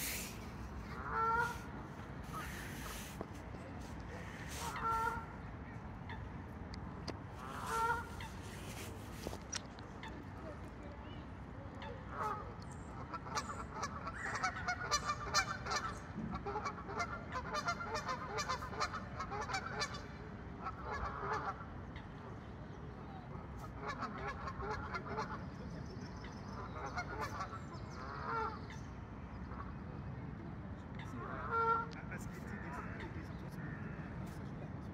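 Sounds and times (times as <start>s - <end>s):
geese honking: 0.0s - 3.2s, 4.4s - 5.4s, 7.3s - 9.3s, 31.0s - 33.1s.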